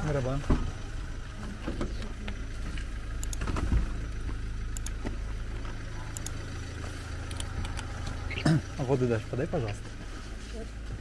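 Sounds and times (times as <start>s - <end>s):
car engine rumble from inside: 0.0s - 11.0s
faint clicks: 4.7s - 5.1s.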